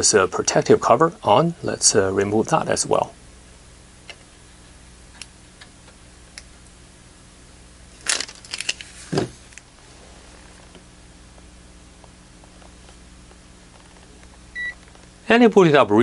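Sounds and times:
plastic film peeling off: 8.0s - 9.6s.

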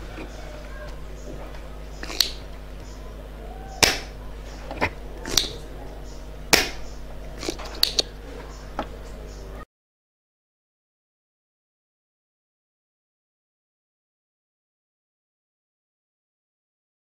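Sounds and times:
low hum: 0.0s - 9.7s
desoldering pump snapping: 0.1s - 3.0s, 3.7s - 9.0s.

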